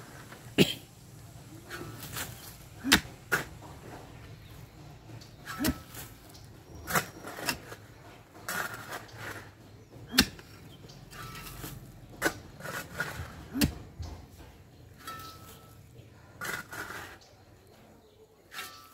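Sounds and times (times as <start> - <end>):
pickaxe striking stony earth: 2.0 - 3.5, 10.1 - 10.6, 13.5 - 13.9.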